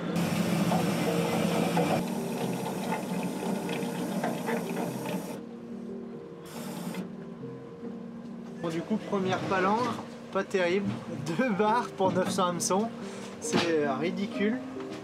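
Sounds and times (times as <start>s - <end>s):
hydraulic hauler whine: 0.0s - 5.4s
water hissing: 0.1s - 5.4s.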